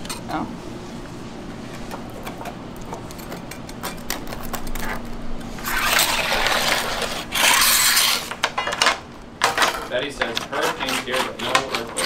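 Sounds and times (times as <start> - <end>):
metal knives scraping steel table: 3.2 - 8.4, 9.4 - 12.0.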